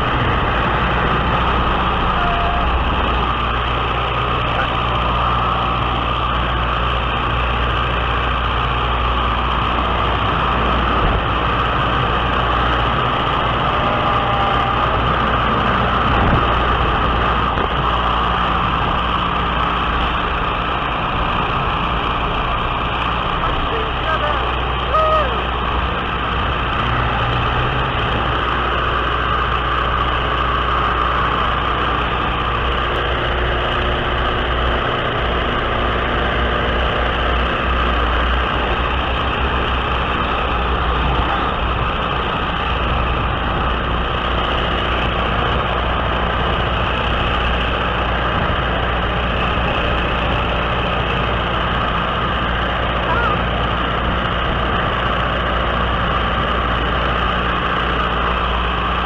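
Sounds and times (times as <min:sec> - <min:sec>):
wind rushing over microphone: 0:00.0 - 0:23.2
piston engine running: 0:00.0 - 0:59.0.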